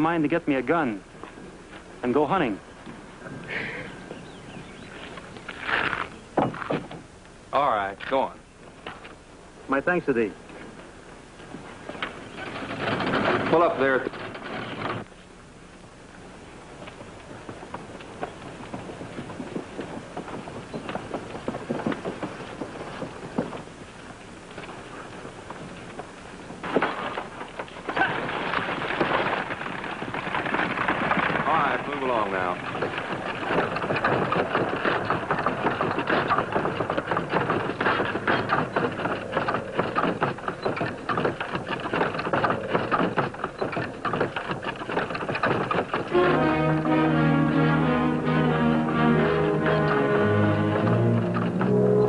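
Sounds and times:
hooves clopping: 0:00.0 - 0:52.0
wagon wheels rattling: 0:10.0 - 0:15.3, 0:16.2 - 0:52.0.

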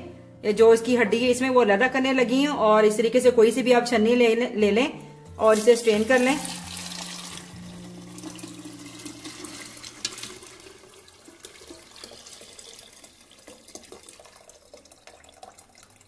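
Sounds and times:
liquid pouring and splashing: 0:05.5 - 0:16.0.

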